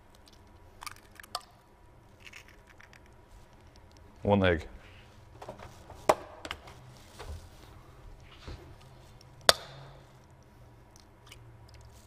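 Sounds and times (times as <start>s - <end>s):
egg cracking on bowl rim: 0.1s - 4.0s.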